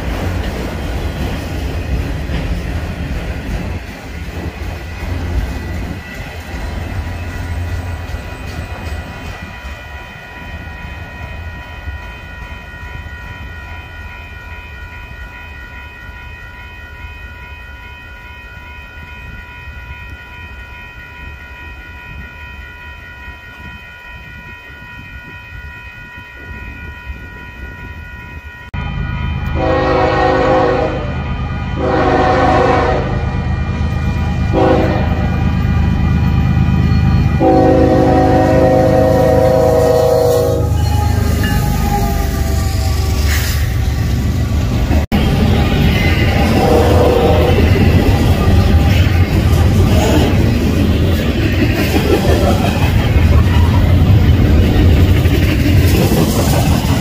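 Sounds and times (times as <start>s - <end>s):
engine and rail rumble: 0.0s - 57.0s
passing freight train rumble: 0.0s - 57.0s
crossing signal ringing: 1.7s - 51.8s
locomotive air horn blasts: 29.5s - 31.2s, 31.8s - 33.4s, 34.5s - 35.4s, 37.4s - 43.0s, 46.3s - 48.0s.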